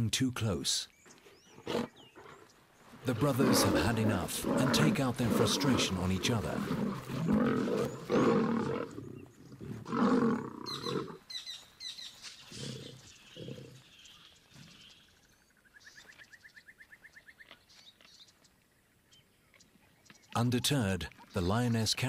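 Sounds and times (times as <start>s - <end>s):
lion growls: 1.5s - 11.2s, 12.5s - 13.8s
lions snarling roars: 1.6s - 11.2s, 12.5s - 13.8s.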